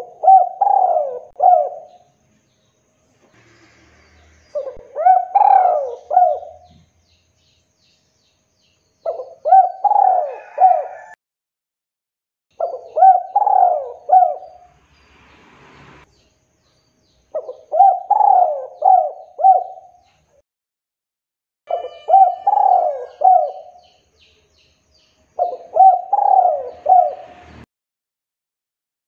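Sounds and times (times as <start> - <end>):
dove cooing: 0.0 - 2.1, 4.5 - 6.8, 9.0 - 11.2, 12.6 - 14.7, 17.3 - 20.0, 21.7 - 23.9, 25.4 - 27.4.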